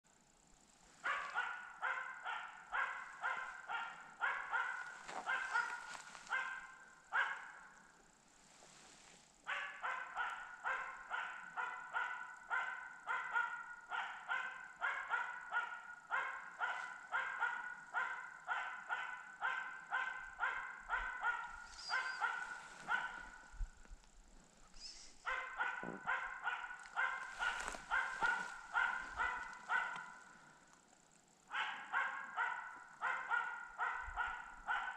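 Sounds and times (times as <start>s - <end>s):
dog barking rapidly: 1.0s - 7.7s, 9.5s - 23.6s, 25.2s - 30.4s, 31.5s - 34.9s.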